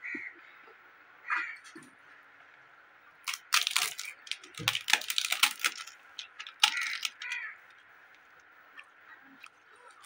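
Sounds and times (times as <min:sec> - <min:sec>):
papad crackling and snapping: 0:03.3 - 0:07.8.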